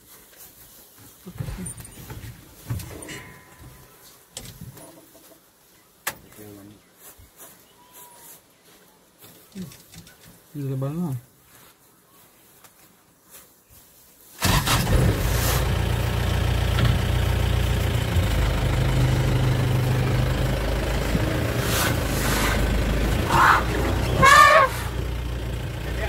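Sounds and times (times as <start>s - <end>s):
vehicle engine idling: 14.4s - 26.0s
short wavering calls: 22.0s - 25.0s.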